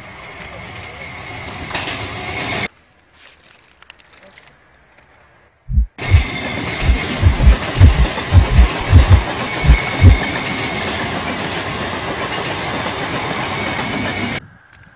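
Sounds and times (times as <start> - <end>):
train rumble: 5.7 - 14.4.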